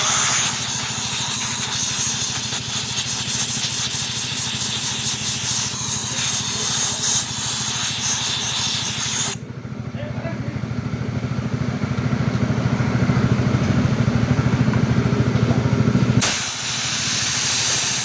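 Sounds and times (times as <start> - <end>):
compressed air blow gun hissing: 0.0 - 9.4, 16.2 - 18.0
machine running with pulsing beat: 0.0 - 9.5.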